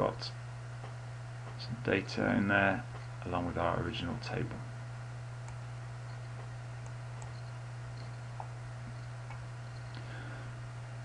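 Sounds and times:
low electrical hum: 0.0s - 11.0s
computer mouse clicks: 6.2s - 8.5s.

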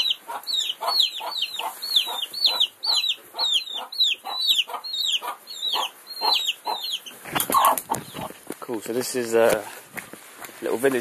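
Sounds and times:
chicks cheeping: 0.0s - 8.5s.

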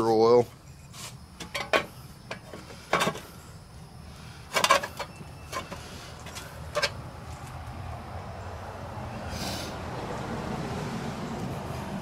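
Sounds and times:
metal parts clicking and scraping: 0.8s - 3.3s, 4.5s - 7.0s.

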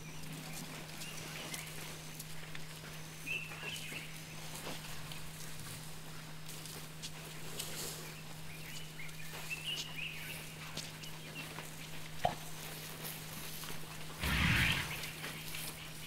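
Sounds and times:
steady low hum: 14.2s - 15.5s.

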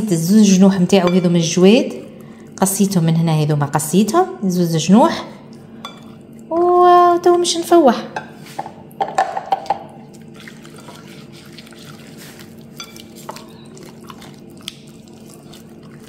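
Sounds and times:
faint steady hum: 0.0s - 16.0s
wet squelches of marinating meat: 10.0s - 16.0s.

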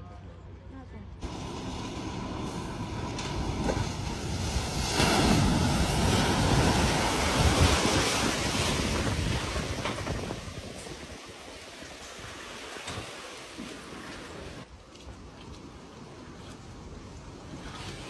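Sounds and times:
vehicle low rumble: 0.0s - 11.3s
water surging and splashing: 1.2s - 18.0s.

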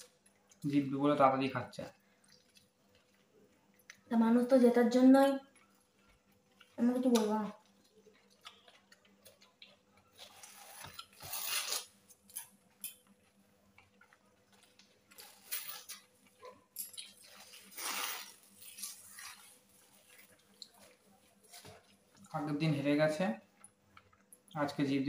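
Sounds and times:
biting and chewing: 5.5s - 22.3s
paper wrappers crinkling: 17.0s - 22.1s.

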